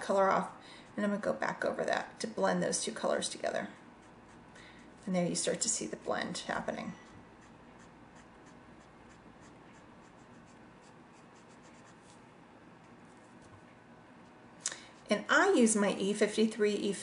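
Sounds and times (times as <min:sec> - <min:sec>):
marker nib scratching paper: 0:03.7 - 0:05.2, 0:07.0 - 0:12.2.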